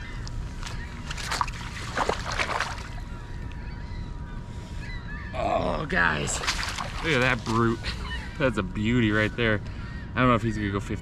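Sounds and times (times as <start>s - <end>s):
shallow water splashing: 0.6s - 3.2s, 6.0s - 8.2s.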